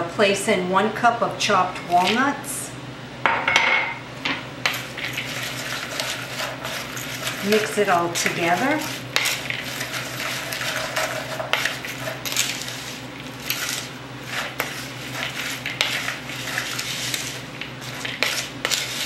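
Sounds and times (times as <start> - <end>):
spoon scraping dry mix in bowl: 4.6 - 19.0.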